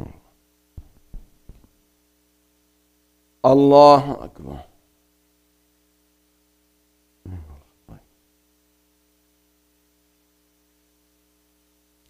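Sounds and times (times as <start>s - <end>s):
low electrical hum: 0.0s - 12.0s
soft vocal sound: 7.2s - 8.1s.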